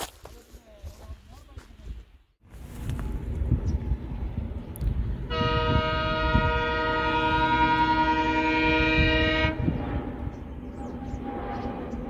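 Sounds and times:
diesel locomotive chugging: 0:03.0 - 0:12.0
long locomotive horn blast: 0:05.3 - 0:12.0.

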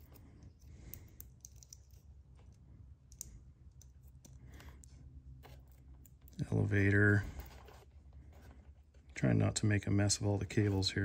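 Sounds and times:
small plastic clicks: 0:00.6 - 0:05.0.

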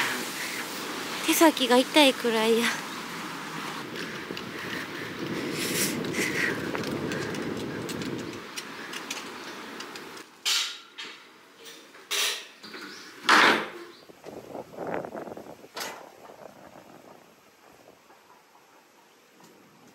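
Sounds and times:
low rumbling noise: 0:00.0 - 0:10.2, 0:14.0 - 0:18.3.

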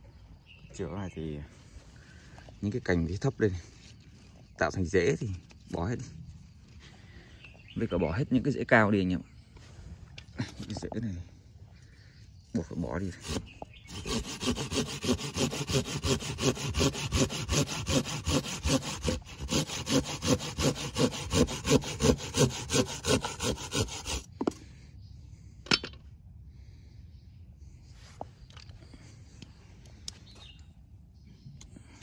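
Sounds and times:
hand saw cutting root: 0:13.0 - 0:24.5.

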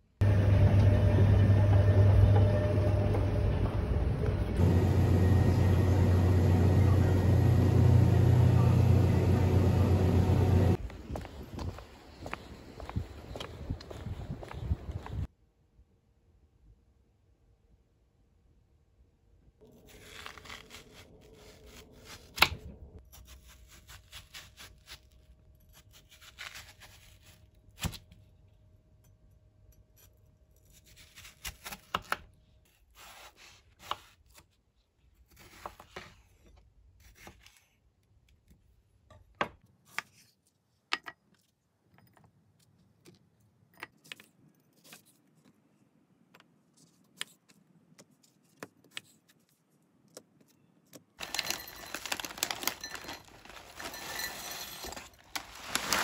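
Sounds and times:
knife crunching through watermelon: 0:19.6 - 0:22.5, 0:23.1 - 0:28.0.

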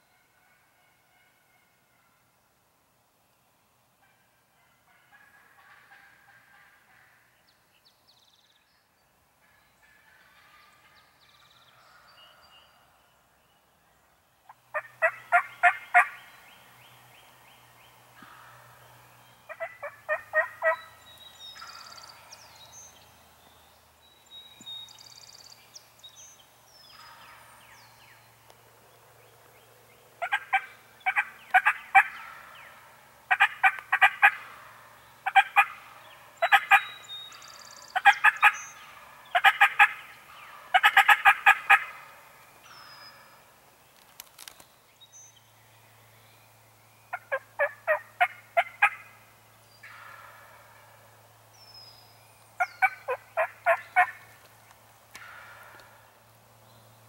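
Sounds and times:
turkey gobbling: 0:04.9 - 0:07.2, 0:14.7 - 0:16.2, 0:19.5 - 0:20.9, 0:30.2 - 0:37.0, 0:38.0 - 0:42.2, 0:47.1 - 0:49.2, 0:52.6 - 0:54.2
faint songbird chirps: 0:10.6 - 0:32.9.

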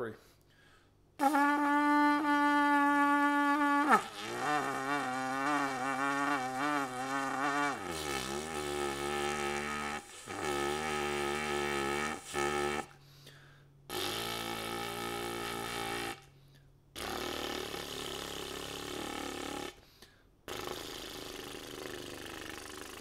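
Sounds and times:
trumpet long-tone notes: 0:01.2 - 0:12.9, 0:14.3 - 0:16.2.

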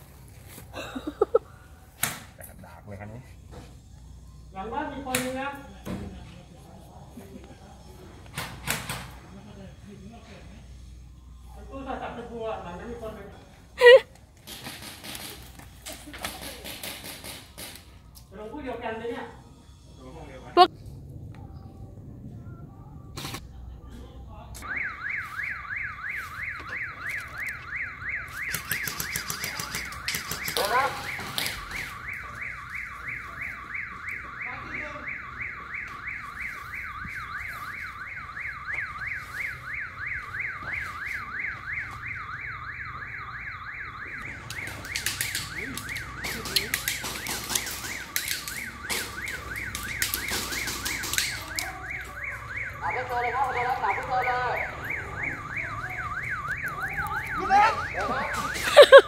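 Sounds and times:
electronic alarm siren warbling: 0:24.6 - 0:59.0.

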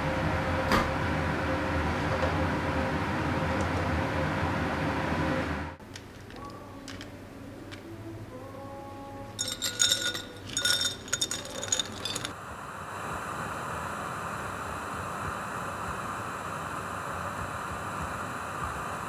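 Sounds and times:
glassware clinking: 0:09.4 - 0:12.3
steady hiss: 0:10.9 - 0:19.0.

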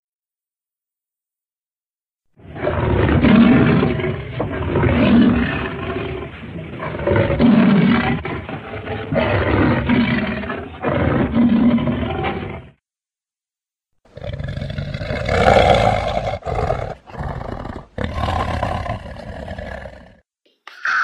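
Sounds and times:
monster growling roars: 0:02.4 - 0:12.8, 0:14.2 - 0:20.2.

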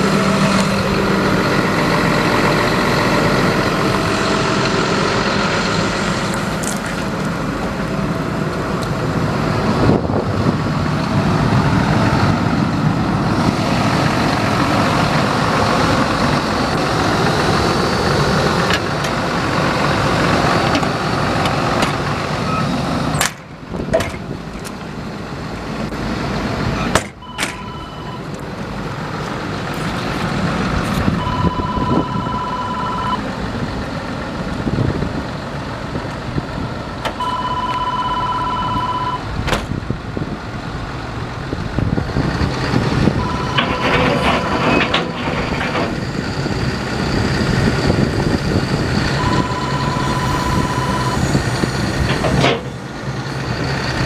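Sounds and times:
excavator diesel engine running: 0:00.0 - 0:54.0
high electronic beeps: 0:43.2 - 0:43.9, 0:49.2 - 0:51.2.

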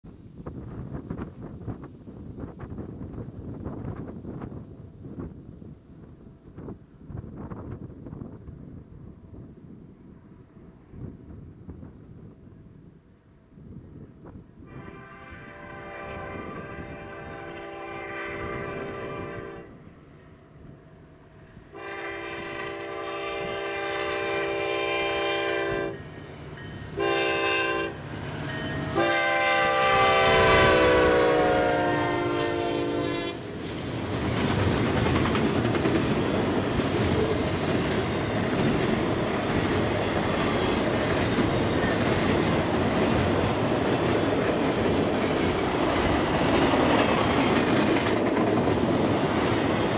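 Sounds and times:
train wheels rumbling on rails: 0:00.3 - 0:12.6, 0:21.8 - 0:49.9
locomotive air horn blasts: 0:14.6 - 0:19.8, 0:21.7 - 0:26.0, 0:27.0 - 0:28.0, 0:28.9 - 0:33.4.

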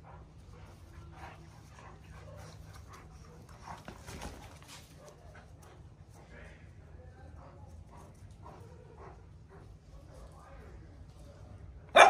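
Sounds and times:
dogs scuffling: 0:00.4 - 0:06.2.

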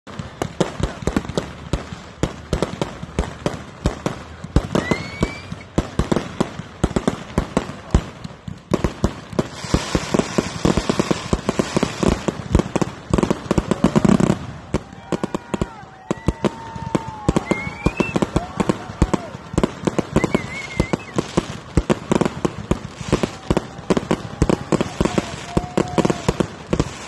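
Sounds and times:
dense crackling hiss: 0:00.1 - 0:27.0
firework aerial bursts: 0:00.1 - 0:27.0
rising whistle: 0:04.8 - 0:05.7, 0:17.2 - 0:18.3, 0:20.1 - 0:21.2.

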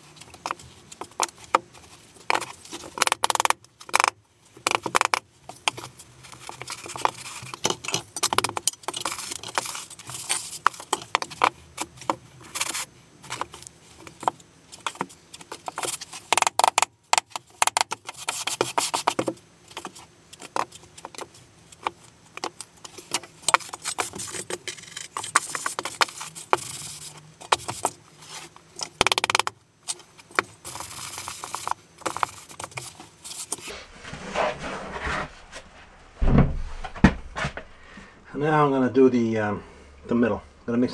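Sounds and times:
trowel scraping gritty mortar: 0:33.2 - 0:36.0.

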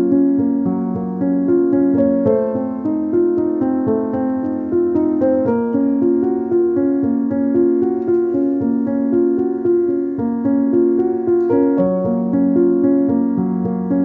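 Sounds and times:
keyboard melody: 0:00.0 - 0:14.0.

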